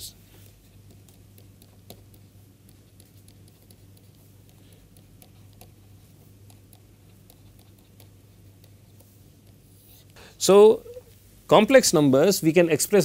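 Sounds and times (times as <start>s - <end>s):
low electrical hum: 0.0s - 13.0s
stylus tapping on pen tablet: 0.4s - 9.6s.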